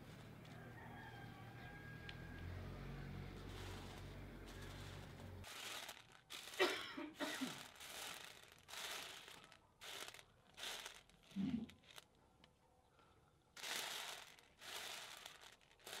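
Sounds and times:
dry beans rattling on a tray: 3.5s - 12.2s, 13.6s - 16.0s.

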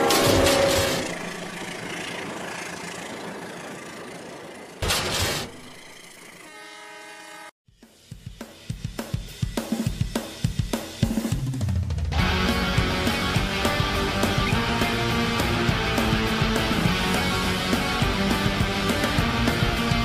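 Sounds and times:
rock drum beat: 7.7s - 20.0s.

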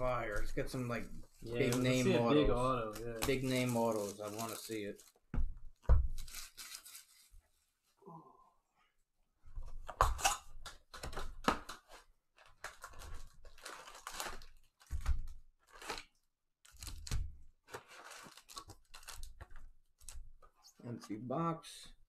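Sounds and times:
packaging tearing and crinkling: 2.9s - 5.2s, 6.1s - 7.3s, 10.0s - 16.1s, 16.7s - 20.2s.

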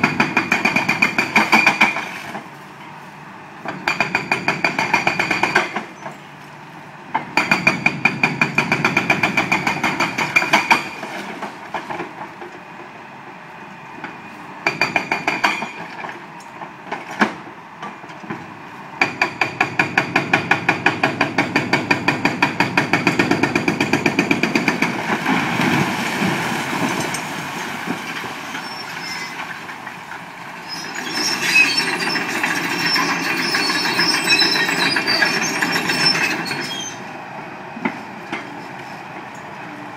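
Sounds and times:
hydraulic breaker hammering concrete: 0.0s - 2.0s, 3.8s - 5.8s, 7.3s - 10.9s, 19.0s - 25.0s.

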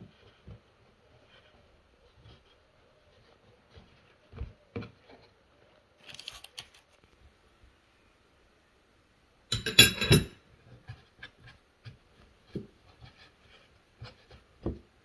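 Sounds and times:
hands folding dough on board: 0.0s - 5.8s, 10.5s - 15.0s
metal spoon scraping and clinking: 9.5s - 10.4s.

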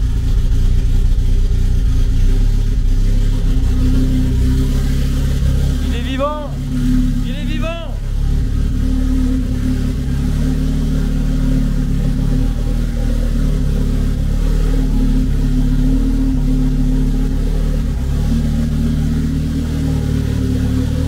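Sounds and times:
turbocharged car engine running: 0.0s - 21.0s.

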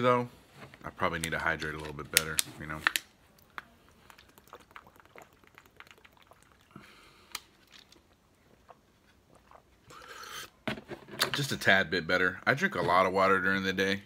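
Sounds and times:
sipping and swallowing water: 3.4s - 10.6s.

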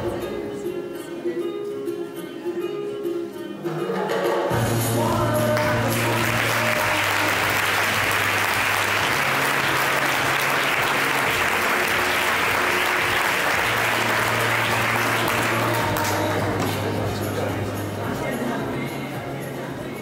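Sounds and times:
plucked-string song: 0.0s - 20.0s
audience applauding: 5.2s - 17.8s.

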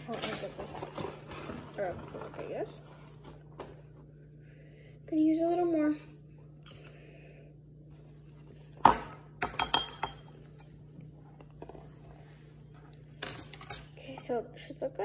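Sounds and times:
metal utensils clinking on ceramic bowl: 8.8s - 10.8s, 12.7s - 14.3s.

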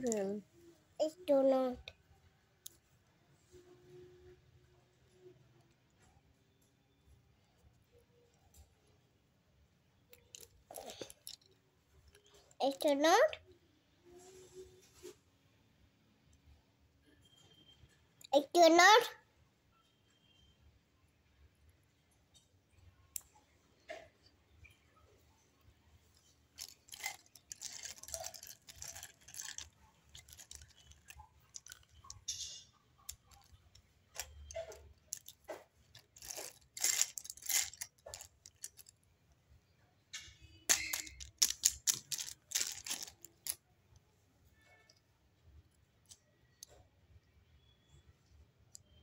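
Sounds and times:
plastic toys clattering: 10.1s - 13.1s, 26.0s - 39.1s, 40.1s - 43.7s.

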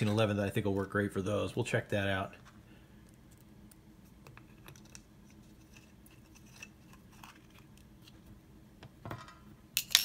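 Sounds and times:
faint steady hum: 0.0s - 10.0s
small clicks and scrapes: 3.0s - 8.3s.

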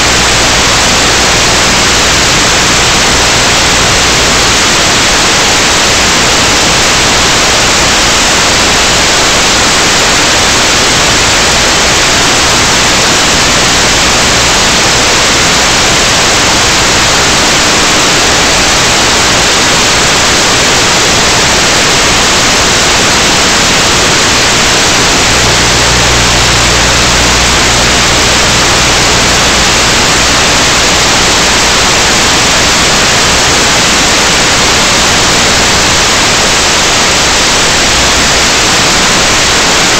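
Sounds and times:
loud static hiss: 0.0s - 39.9s
faint low hum: 24.0s - 32.6s.

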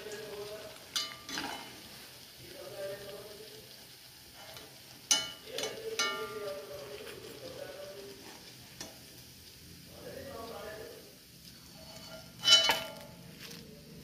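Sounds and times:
food sizzling in hot oil: 0.0s - 14.0s
metal spoon clinking on pan: 0.9s - 1.8s, 4.4s - 6.7s, 11.8s - 13.2s.

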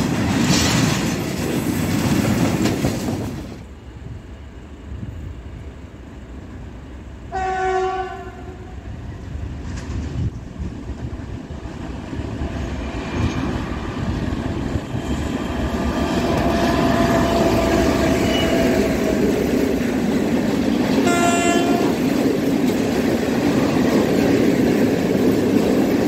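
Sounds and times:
train wheels clattering over rails: 0.0s - 3.7s, 9.2s - 26.0s
diesel locomotive engine: 0.0s - 26.0s.

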